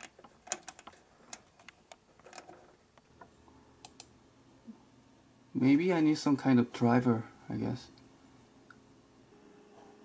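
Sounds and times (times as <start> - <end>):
sharp clicks: 3.8 - 4.1.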